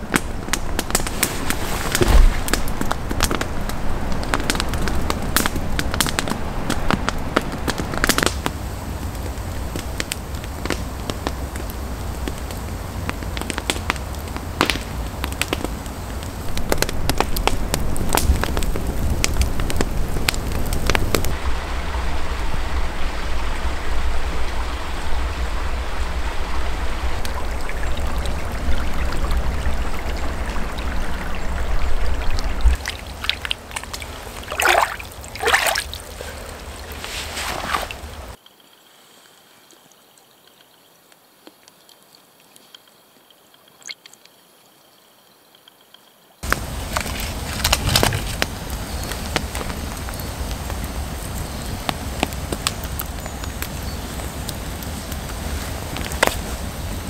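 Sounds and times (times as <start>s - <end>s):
water splashing: 0.0s - 22.3s, 26.5s - 38.4s
campfire burning with hiss: 0.0s - 43.0s, 46.4s - 57.0s.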